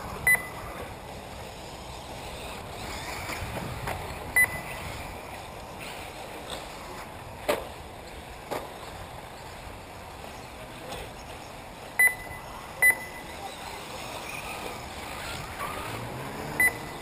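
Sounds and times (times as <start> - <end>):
steady outdoor hiss: 0.0 - 17.0
high electronic double beeps: 4.4 - 4.8, 12.0 - 13.4, 16.6 - 17.0.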